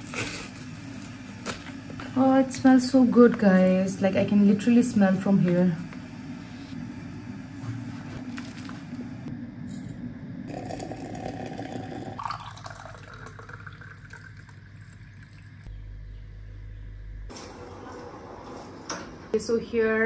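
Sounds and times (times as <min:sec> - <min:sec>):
tea pouring through a strainer: 0:10.5 - 0:15.7
water pouring into a ceramic jug: 0:10.5 - 0:15.7.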